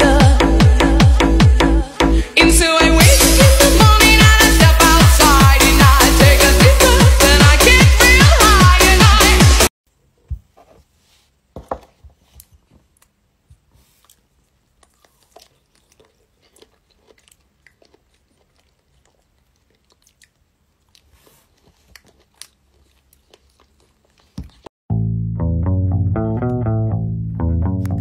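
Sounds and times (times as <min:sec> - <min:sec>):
strawberries bitten and chewed: 0:12.3 - 0:24.7.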